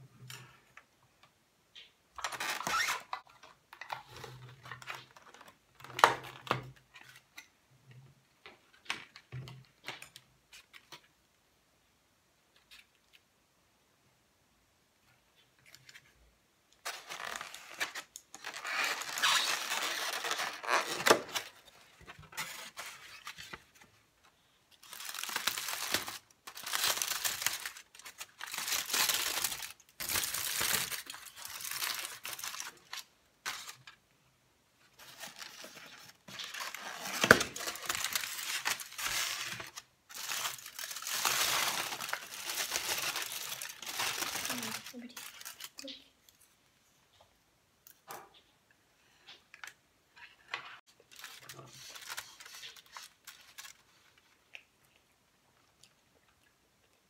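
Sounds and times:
plastic containers crackling: 0:16.8 - 0:23.9, 0:24.7 - 0:34.0, 0:35.0 - 0:46.0
aluminium foil crinkling: 0:16.8 - 0:24.0, 0:24.7 - 0:34.0, 0:35.0 - 0:46.4, 0:50.9 - 0:54.6.

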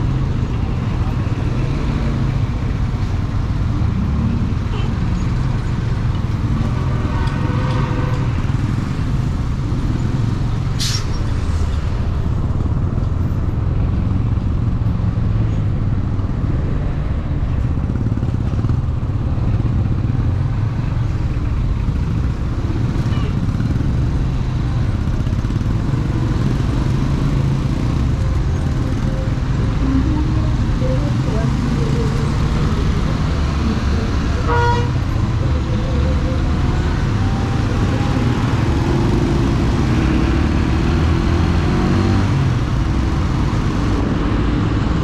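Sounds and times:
short sharp hiss: 0:10.8 - 0:11.2.

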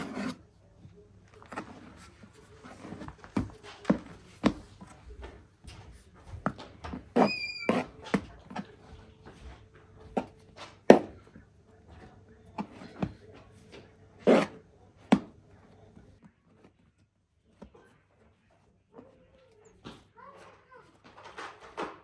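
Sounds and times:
high squeak: 0:07.2 - 0:07.9.

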